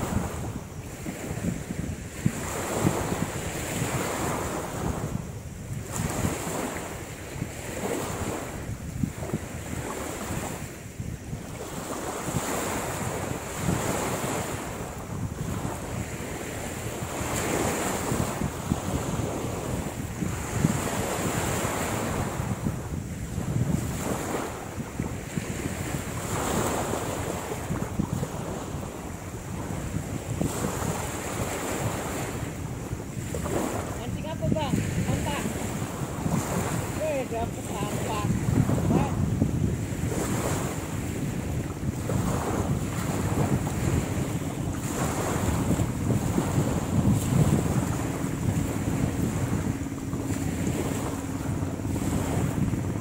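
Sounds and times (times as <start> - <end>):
small waves washing on shore: 0.0 - 53.0
wind buffeting microphone: 0.0 - 53.0.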